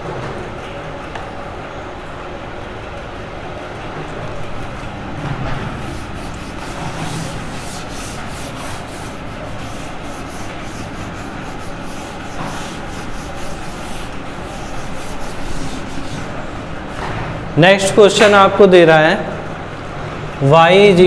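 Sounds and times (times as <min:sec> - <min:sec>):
rubbing and scraping on board: 0:05.6 - 0:16.5.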